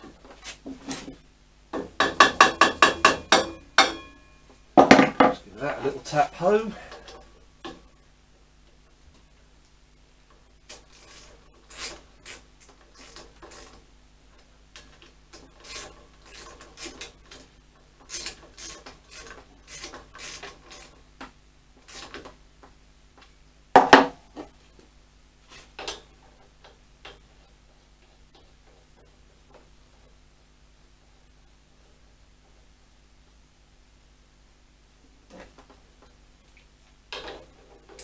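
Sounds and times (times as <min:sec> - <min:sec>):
metal knock: 0:01.8 - 0:04.2
metal parts scraping: 0:14.8 - 0:21.0.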